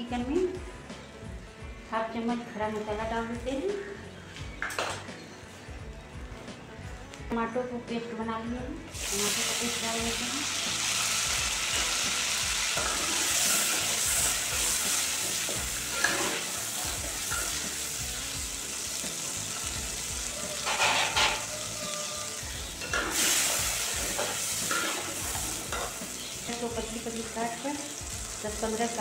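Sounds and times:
hot oil sizzling in a pot: 0:08.9 - 0:29.0
metal spatula scraping a pot: 0:20.5 - 0:22.0.

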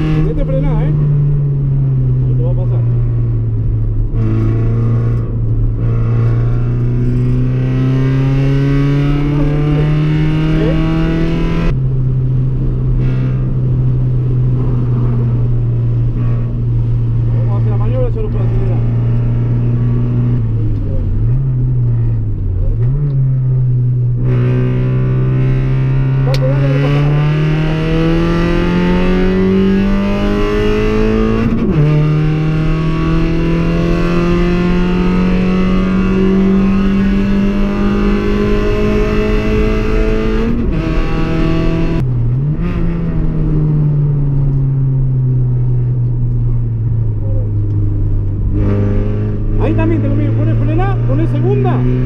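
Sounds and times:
car engine accelerating hard: 0:00.0 - 0:52.0.

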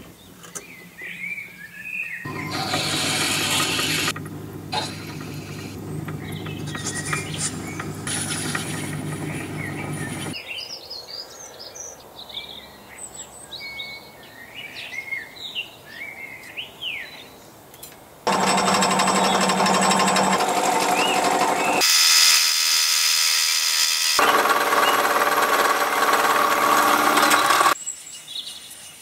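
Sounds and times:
birds chirping: 0:00.2 - 0:17.4, 0:18.3 - 0:21.8
lathe turning metal: 0:02.3 - 0:10.4, 0:18.3 - 0:27.8
milling machine cutting metal: 0:02.3 - 0:10.4, 0:18.3 - 0:27.8.

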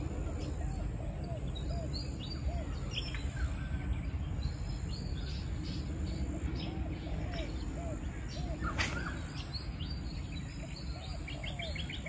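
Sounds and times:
birds chirping and calling: 0:00.0 - 0:12.0
lower arching bird call: 0:06.7 - 0:09.8.

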